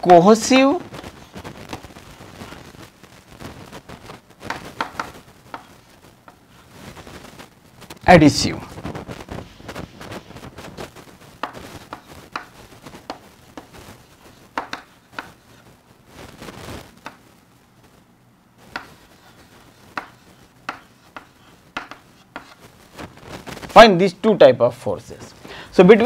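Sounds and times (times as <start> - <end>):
chalk tapping and scratching on board: 4.4 - 6.5, 11.4 - 15.6, 18.7 - 22.6.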